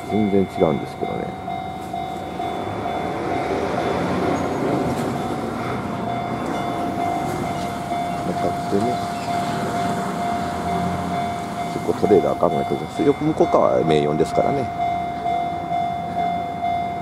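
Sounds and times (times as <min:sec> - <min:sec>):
freight train rumble: 0:00.0 - 0:17.0
level crossing bell ringing: 0:00.0 - 0:17.0.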